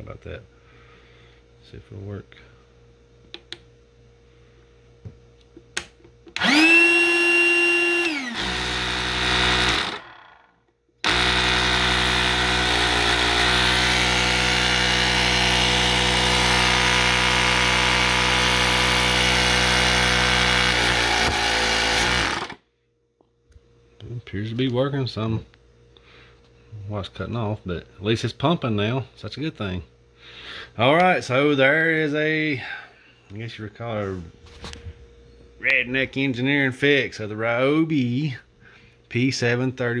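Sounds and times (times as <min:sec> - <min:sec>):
compressor pump whining: 0:05.0 - 0:22.6.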